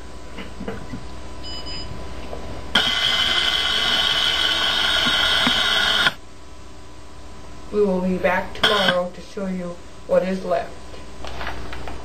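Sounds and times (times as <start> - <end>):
high-pitched electronic buzzer tone: 8.6 - 9.0.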